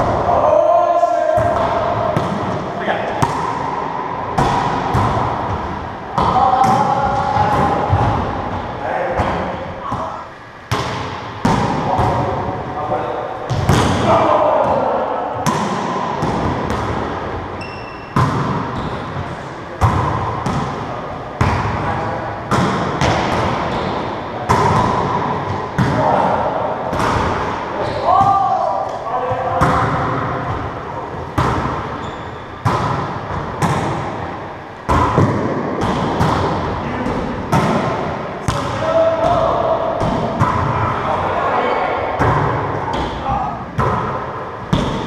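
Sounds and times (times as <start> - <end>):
high squeak: 17.6 - 18.2.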